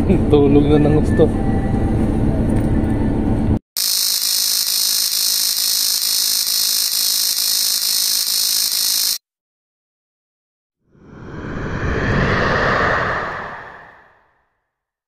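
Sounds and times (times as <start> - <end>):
harsh electronic buzzing tone: 3.8 - 9.2.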